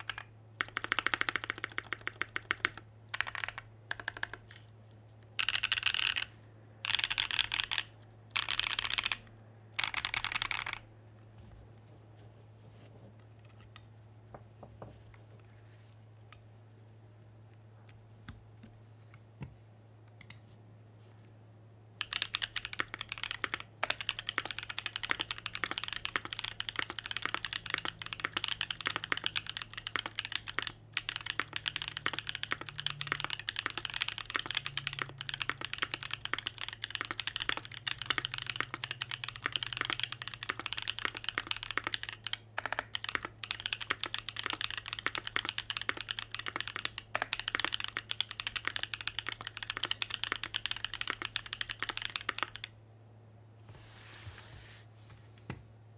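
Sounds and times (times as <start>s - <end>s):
fast typing on mechanical keyboard: 0.0s - 4.5s, 5.4s - 10.8s, 22.0s - 52.7s
faint low hum: 0.0s - 55.9s.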